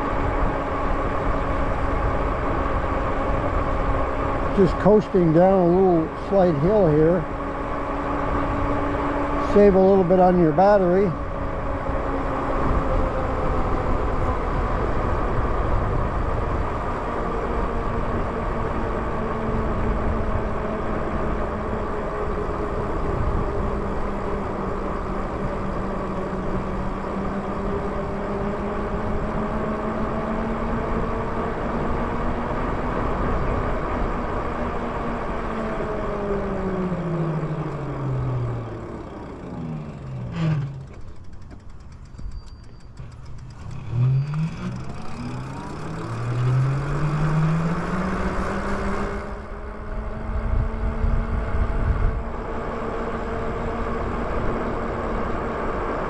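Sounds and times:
bike wheels whirring: 5.6s - 56.0s.

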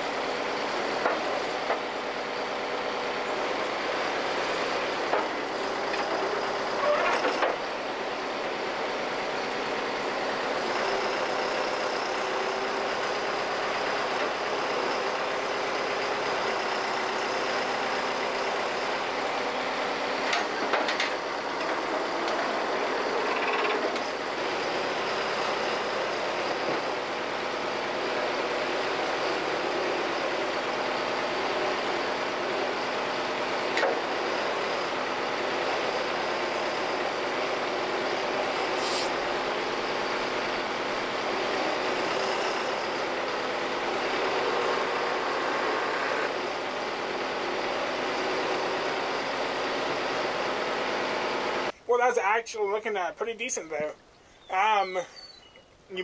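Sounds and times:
backhoe engine running: 0.0s - 51.8s
hydraulics moving: 3.2s - 8.2s, 33.5s - 47.2s.

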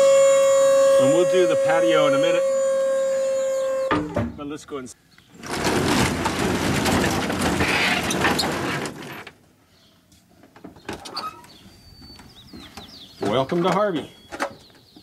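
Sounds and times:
roll-up door rattling open: 5.4s - 9.3s.

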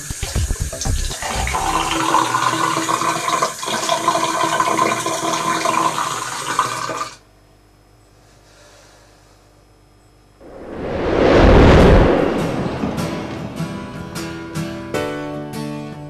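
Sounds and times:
tap water running into basin: 0.0s - 7.2s.

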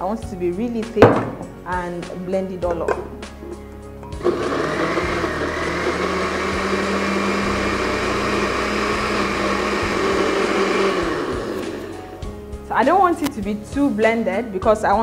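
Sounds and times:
countertop blender running: 4.2s - 12.0s.

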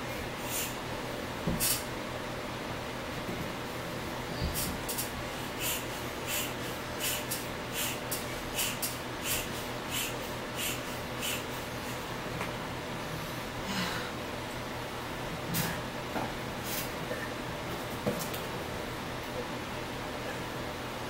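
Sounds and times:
air pump hissing puffs: 0.4s - 0.8s, 1.6s - 1.9s, 4.4s - 12.0s.

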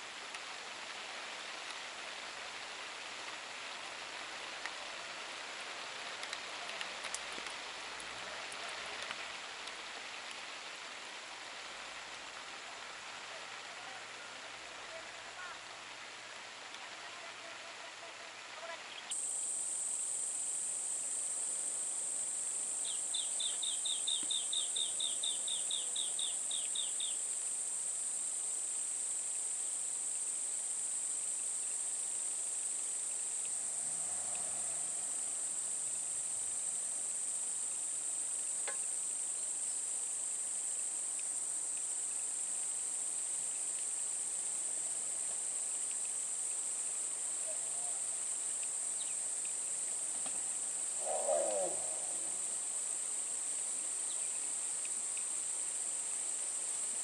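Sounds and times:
insect chirps: 0.0s - 57.0s
high-pitched insect drone: 50.9s - 52.6s.

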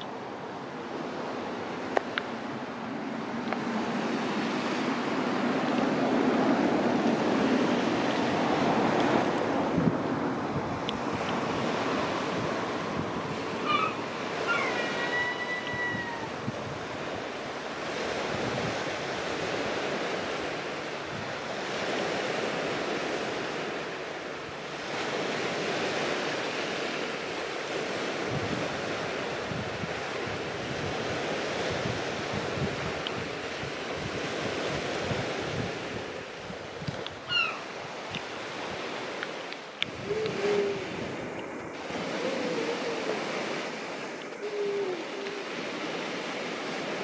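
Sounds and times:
sea surf washing on beach: 0.0s - 47.0s
wind: 0.0s - 47.0s
high bird call: 13.6s - 16.4s, 37.3s - 37.7s.

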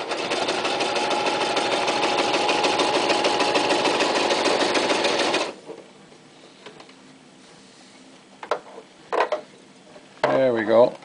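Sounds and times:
sewing machine motor whine: 0.0s - 5.6s.

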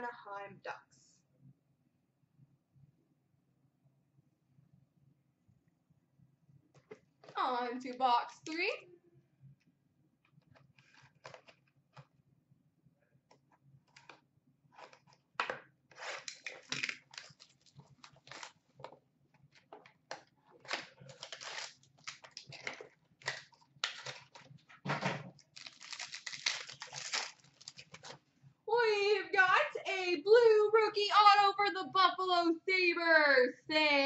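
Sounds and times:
cardboard tearing: 15.9s - 18.6s, 20.6s - 24.4s, 25.5s - 28.2s
wrapper crinkling: 16.2s - 18.6s, 20.6s - 24.5s, 25.4s - 28.2s.

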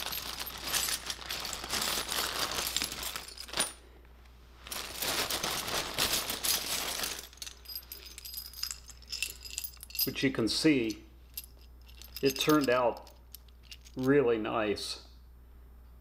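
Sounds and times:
metal hardware clinking: 0.0s - 3.8s, 6.0s - 14.2s
plastic bag rustling: 0.0s - 3.8s, 4.6s - 10.0s.

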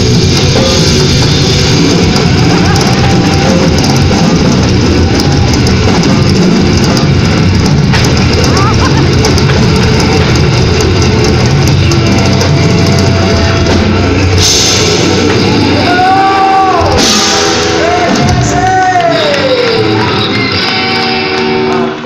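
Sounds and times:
live rock band playing: 0.0s - 22.0s
cymbal crashes: 12.0s - 18.3s.

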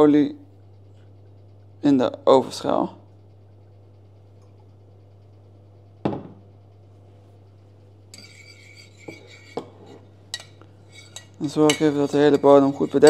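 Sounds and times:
low steady hum: 0.0s - 13.0s
spoon scraping in oven dish: 8.1s - 13.0s.

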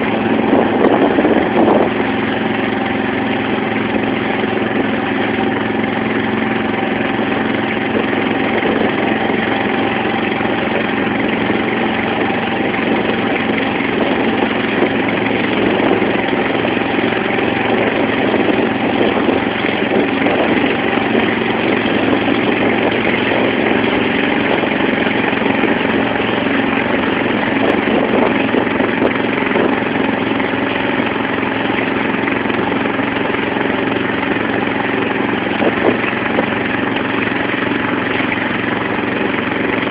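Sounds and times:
motorboat engine drone: 0.0s - 39.9s
water splashing along hull: 0.0s - 39.9s.

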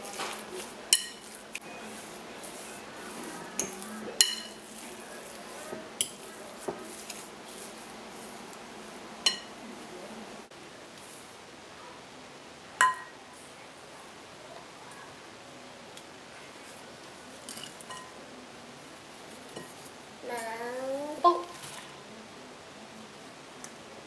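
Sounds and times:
fork stirring cookie dough: 0.0s - 10.0s
fork clinking against glass: 0.9s - 1.3s, 3.6s - 4.6s, 9.2s - 9.5s.

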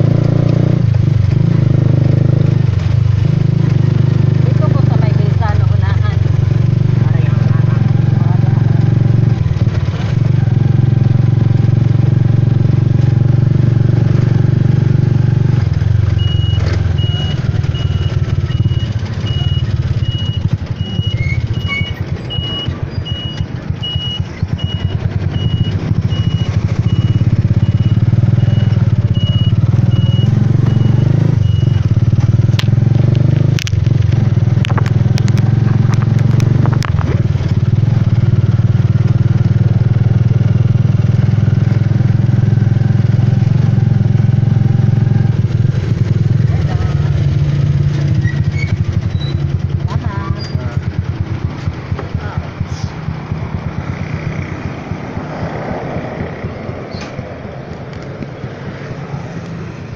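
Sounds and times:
small motorcycle engine running: 0.0s - 57.4s
high electronic beep: 16.2s - 32.1s
sharp clicks: 31.4s - 37.5s.

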